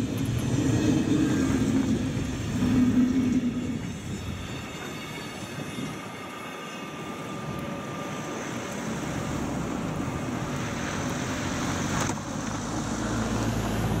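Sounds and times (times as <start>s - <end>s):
car passing on snowy road: 8.2s - 14.0s.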